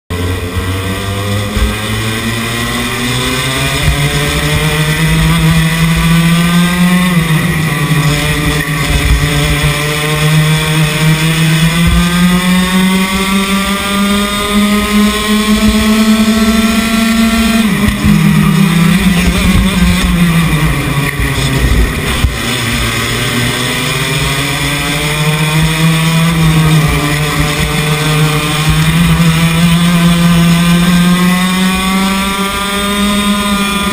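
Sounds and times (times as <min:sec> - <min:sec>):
kart engine at full throttle: 0:00.1 - 0:33.9
wind rumble on microphone: 0:17.8 - 0:23.4.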